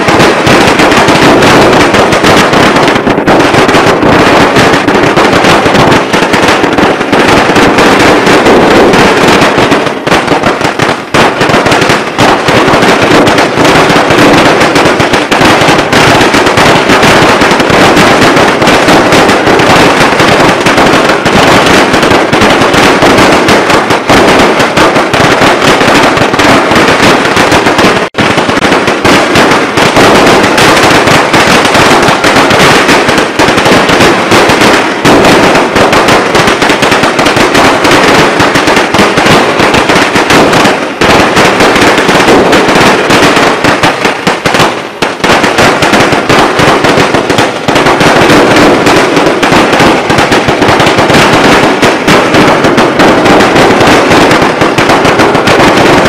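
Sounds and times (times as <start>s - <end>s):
fireworks crackling: 0.0s - 56.0s.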